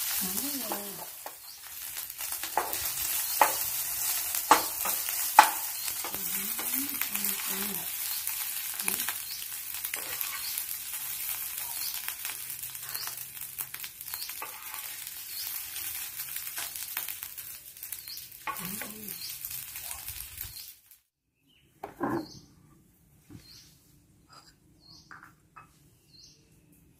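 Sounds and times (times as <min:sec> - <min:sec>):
rice sizzling in a frying pan: 0:00.0 - 0:21.0
wooden spatula scraping pan: 0:14.4 - 0:15.0.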